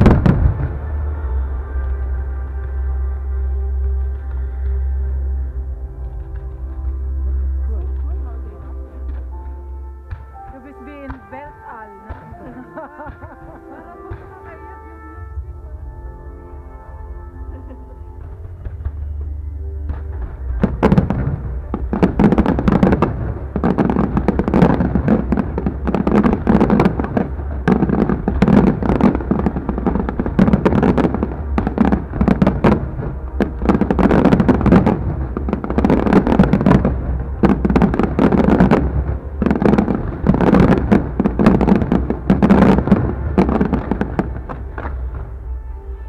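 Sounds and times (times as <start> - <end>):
firework bangs and crackles: 0.0 - 3.1, 6.0 - 14.6, 17.5 - 45.9.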